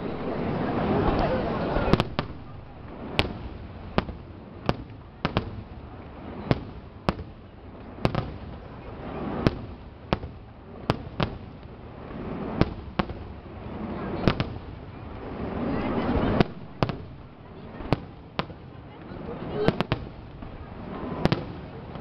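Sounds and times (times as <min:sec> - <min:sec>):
low rumble: 0:15.0 - 0:17.4.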